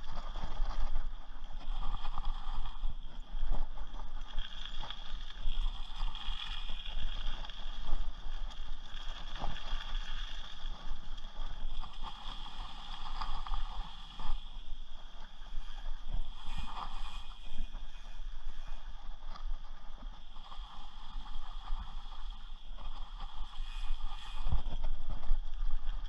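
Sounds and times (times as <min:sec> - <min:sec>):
wind on microphone: 0:10.7 - 0:26.0.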